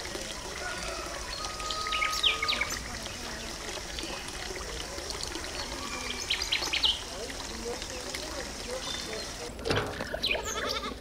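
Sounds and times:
small birds chirping: 5.5 - 9.5.

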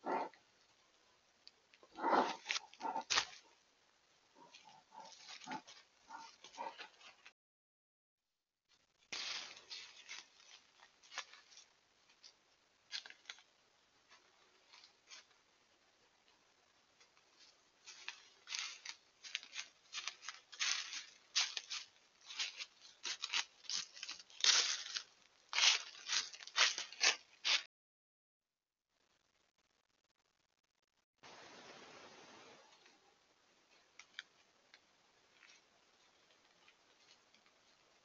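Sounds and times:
hooves crunching dry leaves: 4.4 - 7.2, 9.1 - 12.2, 17.8 - 27.7.

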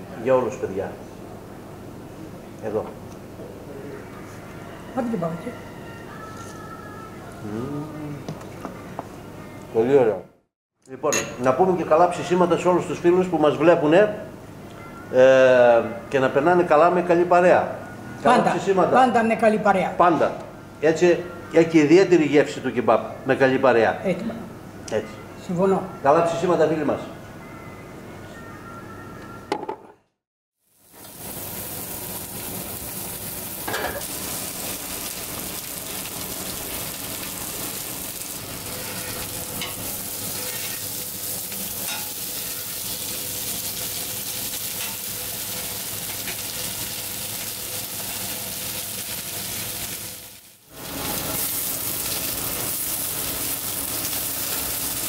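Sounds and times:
meat sizzling on griddle: 30.6 - 55.0
metal spatula scraping griddle: 38.6 - 41.0.

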